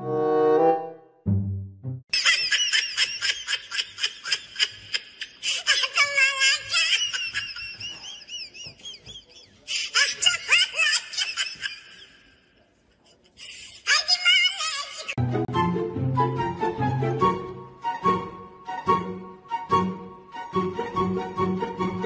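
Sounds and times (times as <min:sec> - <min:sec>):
brief music: 0:00.0 - 0:02.0, 0:15.2 - 0:22.0
person laughing and shrieking: 0:02.2 - 0:08.8.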